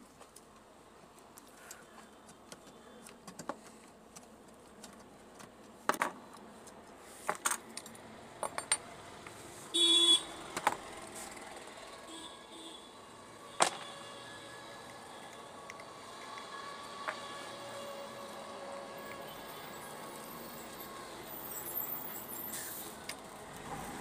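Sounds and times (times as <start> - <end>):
loud horn-like tone: 9.7 - 10.3, 12.1 - 15.5.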